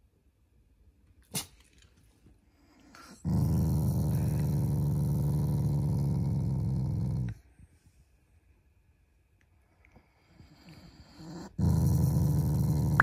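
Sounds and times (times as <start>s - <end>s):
dog growling: 3.0s - 7.4s, 10.7s - 13.0s.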